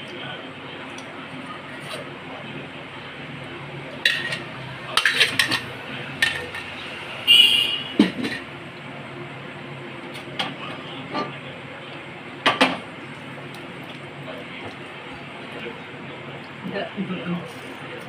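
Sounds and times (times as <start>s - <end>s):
low background hum: 0.0s - 18.0s
utensils knocking on cookware: 4.1s - 6.8s, 7.9s - 8.4s.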